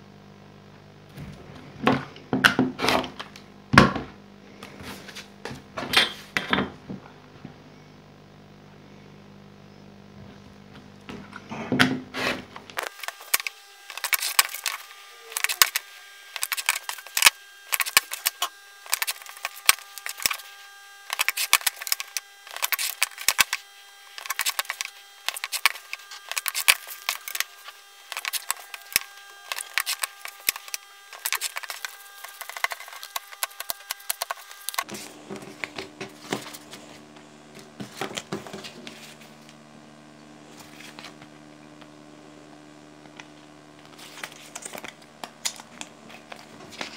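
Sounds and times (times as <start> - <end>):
handling cut cards: 12.7 - 39.5, 43.8 - 46.9
blade cutting card: 12.8 - 36.9.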